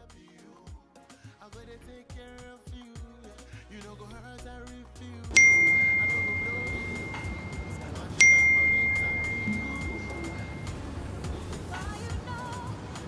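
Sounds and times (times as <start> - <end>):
phone notification chime: 5.3 - 11.9.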